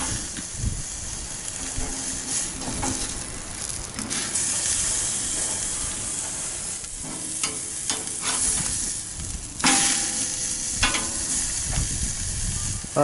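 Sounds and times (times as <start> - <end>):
steak sizzling on grill: 0.0 - 13.0
metal spatula scraping grate: 4.0 - 9.0
steak dropping onto grate: 9.6 - 11.4.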